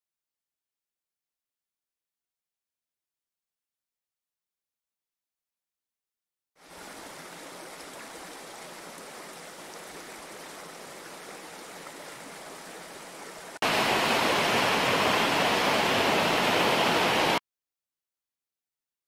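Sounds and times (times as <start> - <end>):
stream pouring over cascade: 6.6 - 17.4.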